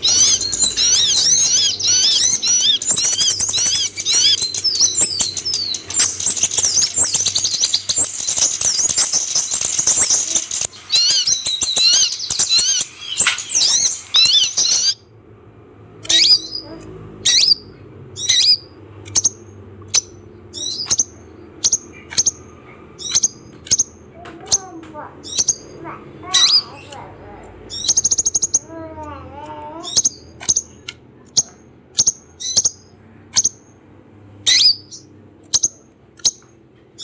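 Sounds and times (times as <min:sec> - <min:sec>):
bird twittering chirps: 0:00.0 - 0:15.1, 0:16.0 - 0:33.8, 0:34.4 - 0:37.0
sharp downward bird chirps: 0:00.0 - 0:15.1, 0:16.0 - 0:27.0, 0:27.7 - 0:28.8, 0:34.4 - 0:36.4.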